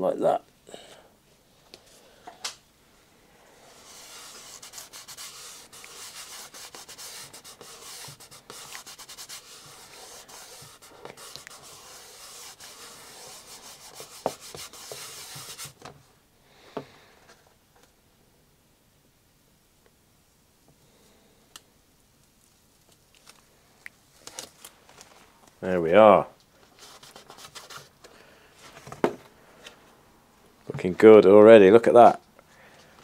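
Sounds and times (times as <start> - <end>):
fingers rubbing decal: 3.6 - 15.8.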